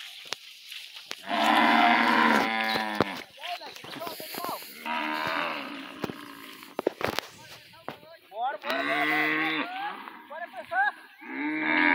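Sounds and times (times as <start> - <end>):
cattle mooing: 1.2 - 3.2, 4.7 - 6.8, 8.6 - 10.4, 11.2 - 11.9.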